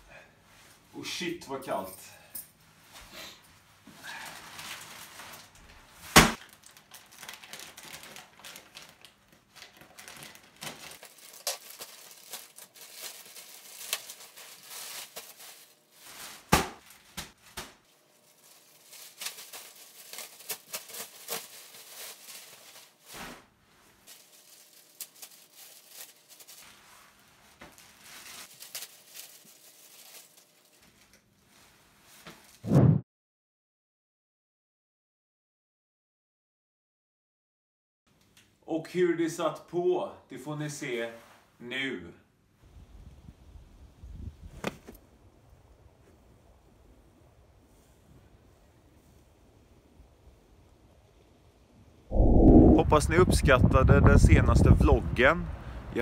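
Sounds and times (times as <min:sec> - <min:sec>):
plastic bag rustling and tearing: 0:04.1 - 0:32.6.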